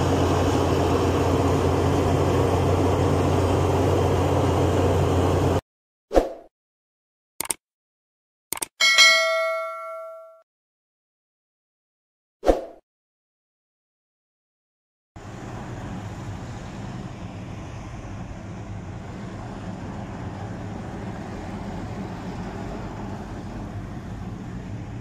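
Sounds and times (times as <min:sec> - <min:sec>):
heavy trucks working outside: 0:00.0 - 0:05.6, 0:15.2 - 0:25.0
truck engine rumble from cab: 0:00.0 - 0:05.6, 0:15.2 - 0:25.0.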